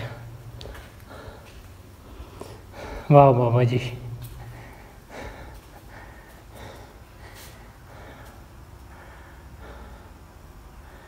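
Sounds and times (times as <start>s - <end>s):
soft breaths close to microphone: 4.4s - 11.0s.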